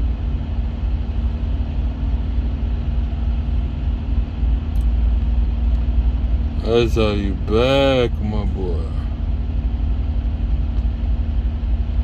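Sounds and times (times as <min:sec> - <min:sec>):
truck engine idling: 0:00.0 - 0:12.0.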